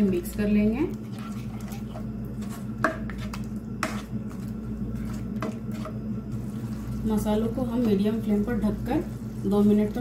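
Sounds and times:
steady low hum: 0:00.0 - 0:10.0
spatula scraping pan: 0:01.0 - 0:08.0
spatula stirring paste in pan: 0:01.0 - 0:10.0.

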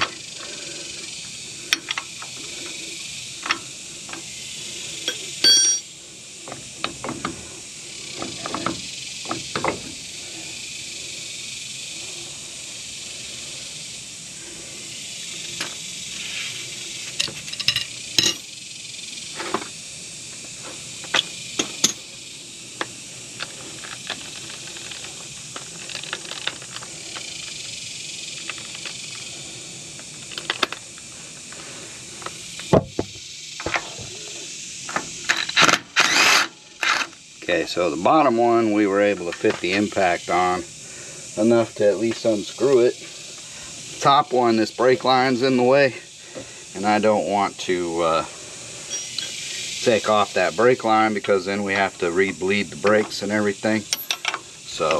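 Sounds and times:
steady background hiss: 0:00.0 - 0:54.9
wrench clicking and clinking: 0:05.1 - 0:05.9, 0:53.9 - 0:54.9.

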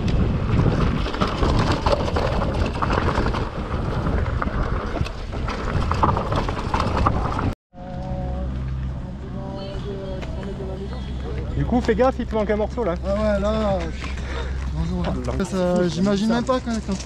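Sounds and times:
bike knocks and clatters: 0:00.0 - 0:07.6
bike tyres on stones: 0:00.0 - 0:07.6
wind on microphone: 0:00.0 - 0:08.0.

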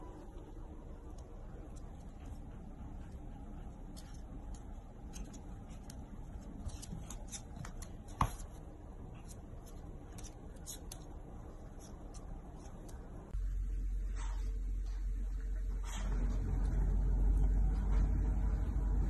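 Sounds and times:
low steady hum: 0:00.0 - 0:19.0
paws and claws on wooden floor: 0:00.4 - 0:13.3.

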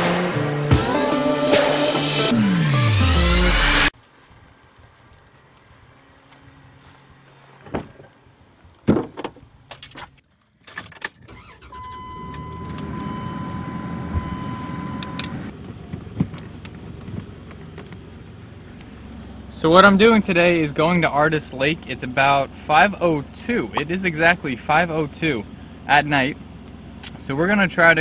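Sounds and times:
steady high tone: 0:00.8 - 0:03.9
knocks and rattles in a car: 0:15.5 - 0:18.0.

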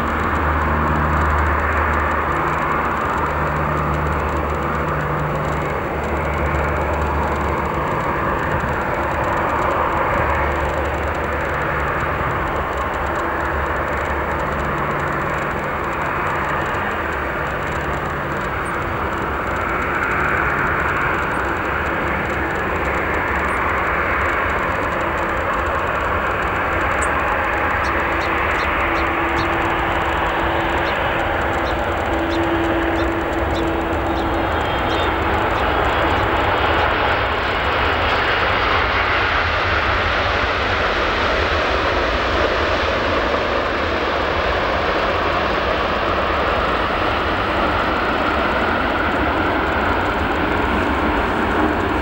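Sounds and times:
jet airliner engine noise: 0:00.0 - 0:52.0.

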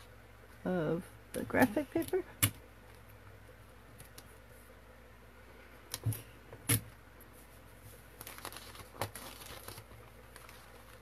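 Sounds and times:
paper rustling: 0:07.3 - 0:11.0.

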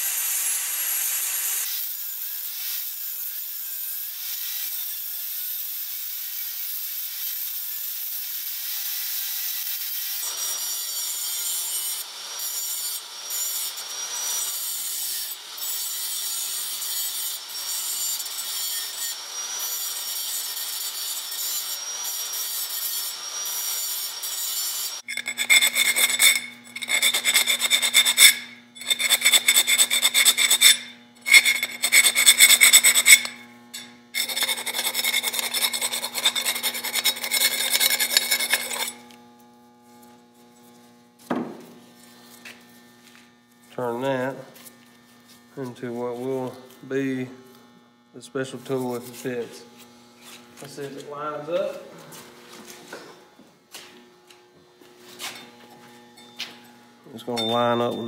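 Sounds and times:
angle grinder cutting steel: 0:00.0 - 0:39.3, 0:55.2 - 0:58.0
rasping strokes on metal tube: 0:25.0 - 0:39.1.

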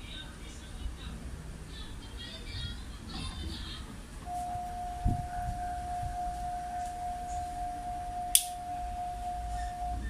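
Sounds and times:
sharp click: 0:08.3 - 0:08.6.

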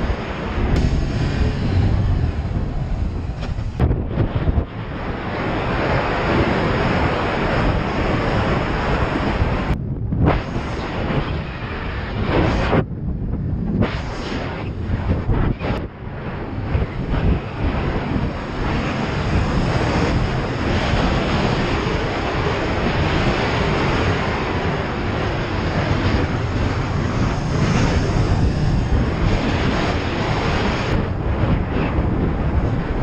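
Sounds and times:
wind noise on microphone: 0:00.0 - 0:33.0
motorcycle engine running: 0:25.4 - 0:30.2.

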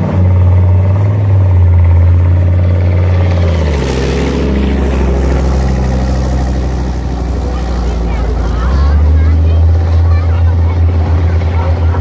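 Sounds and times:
tracked vehicle engine: 0:00.0 - 0:12.0.

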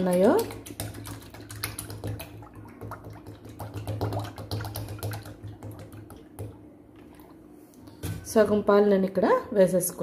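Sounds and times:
milk pouring and splashing: 0:00.0 - 0:07.5.

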